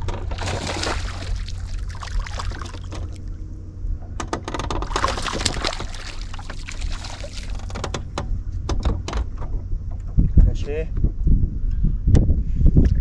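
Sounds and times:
water splashing and sloshing: 0.0s - 8.3s
steady low rumble: 0.0s - 13.0s.

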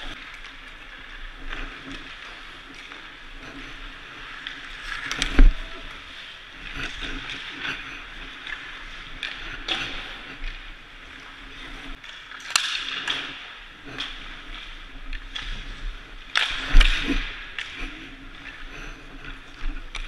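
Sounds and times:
skate blades scraping ice: 0.1s - 20.0s
stick hitting puck cracks: 12.1s - 13.5s.

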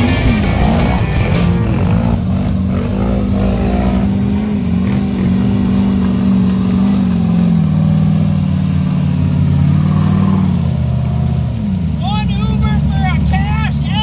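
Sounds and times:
buggy engine running: 0.0s - 14.0s.

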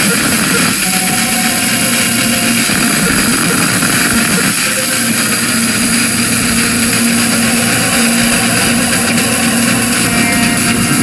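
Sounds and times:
hissing synth noise drone: 0.0s - 11.0s
low held synth note: 0.0s - 11.0s.

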